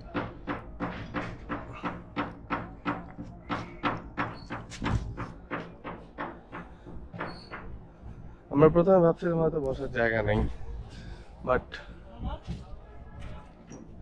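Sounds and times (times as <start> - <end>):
rapid sharp knocks: 0.0 - 7.8.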